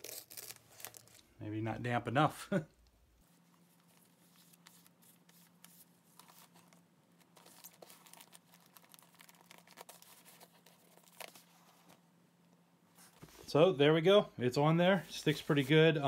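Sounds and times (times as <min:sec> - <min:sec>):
paper tape crinkling: 0:00.0 - 0:01.3, 0:03.7 - 0:12.0.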